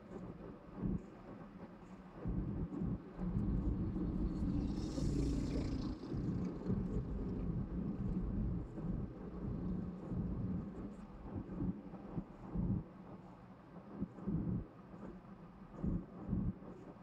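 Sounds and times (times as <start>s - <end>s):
car engine and tyre rumble: 3.0s - 11.2s.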